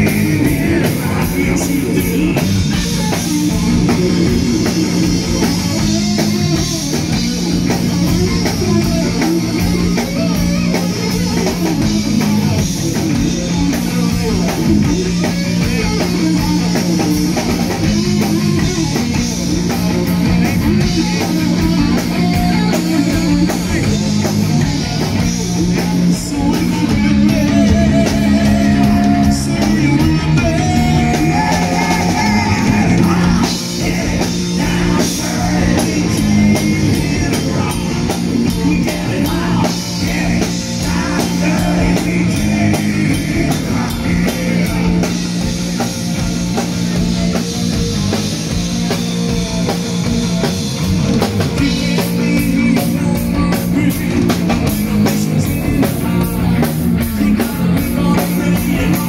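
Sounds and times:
man singing: 0:00.0 - 0:04.8, 0:20.3 - 0:45.8, 0:51.6 - 0:59.0
bass guitar: 0:00.0 - 0:59.0
drum kit: 0:00.0 - 0:59.0
electric guitars: 0:00.0 - 0:59.0.

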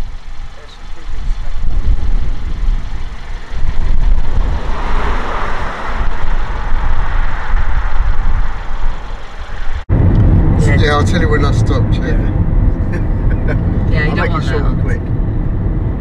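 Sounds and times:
car engine and tyre noise: 0:00.0 - 0:16.0
low rumble: 0:00.0 - 0:16.0.

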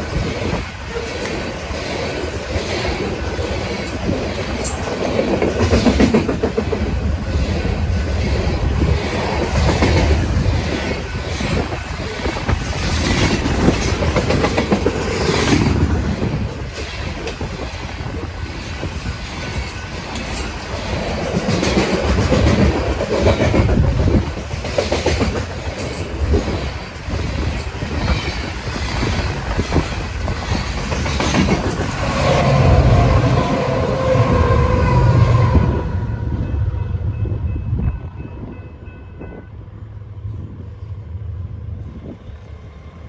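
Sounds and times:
train wheels clacking over rails: 0:00.0 - 0:33.8
diesel locomotive engine drone: 0:00.0 - 0:43.0.

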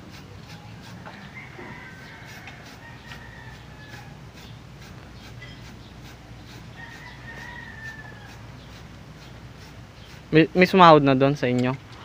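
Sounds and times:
rooster crowing: 0:00.8 - 0:04.5, 0:06.5 - 0:08.8.

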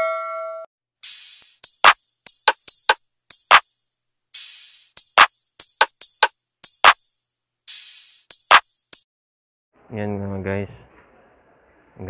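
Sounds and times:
drum machine hits: 0:01.0 - 0:03.7, 0:04.4 - 0:07.0, 0:07.7 - 0:09.0.

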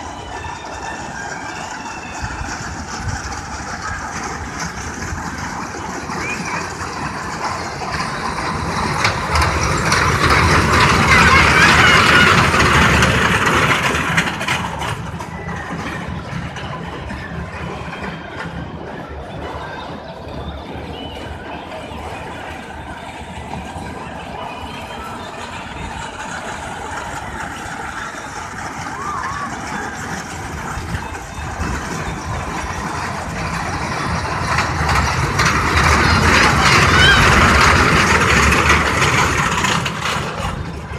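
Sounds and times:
small train running on track: 0:00.0 - 0:40.9.

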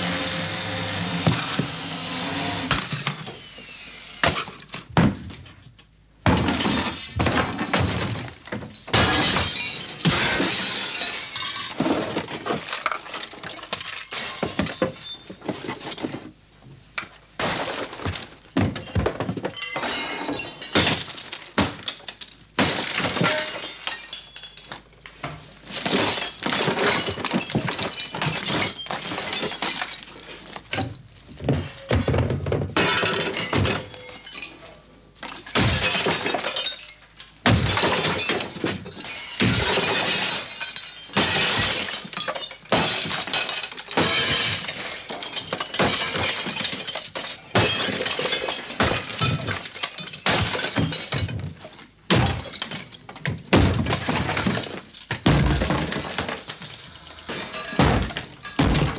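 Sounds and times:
glass shattering and clinking: 0:06.4 - 0:15.6, 0:18.7 - 0:24.8, 0:25.8 - 0:31.0, 0:32.8 - 0:58.9
heavy blows smashing furniture: 0:37.4 - 0:58.9.

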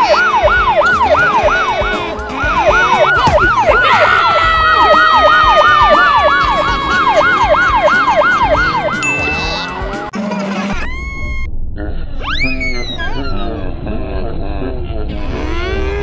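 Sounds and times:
police siren yelping: 0:00.0 - 0:10.1
tone sliding down in pitch: 0:05.6 - 0:10.1.

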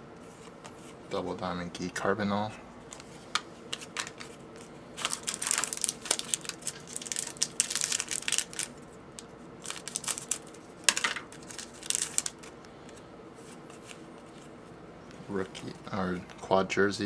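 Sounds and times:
foil wrappers crinkling: 0:05.0 - 0:13.0.

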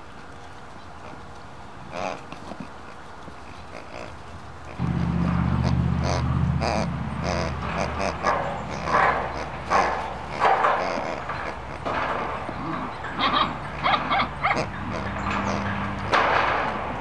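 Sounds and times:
steady low hum: 0:04.4 - 0:17.0
puppies yipping and whining: 0:06.0 - 0:16.2.

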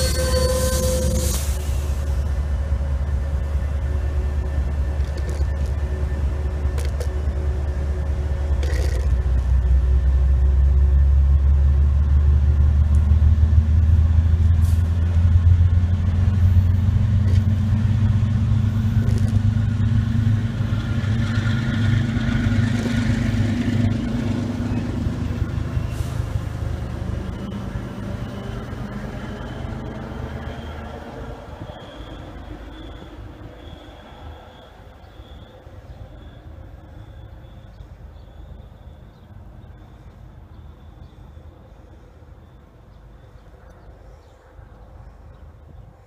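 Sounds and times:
diesel locomotive engine rumbling: 0:00.0 - 0:46.0.

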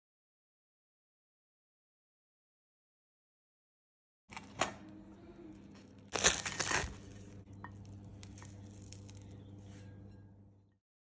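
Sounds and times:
low steady hum: 0:04.3 - 0:10.8
loud crunching noise: 0:06.1 - 0:07.2.

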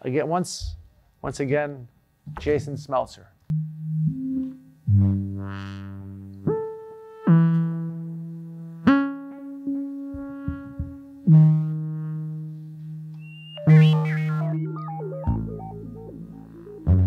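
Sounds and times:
synthesizer playing low held notes: 0:03.5 - 0:17.0.

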